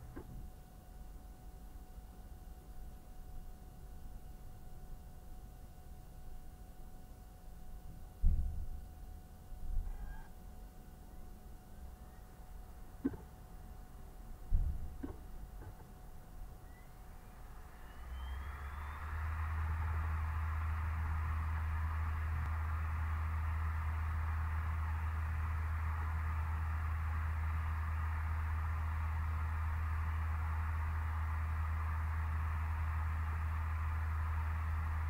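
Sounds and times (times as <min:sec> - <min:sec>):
low hum: 0:11.1 - 0:35.0.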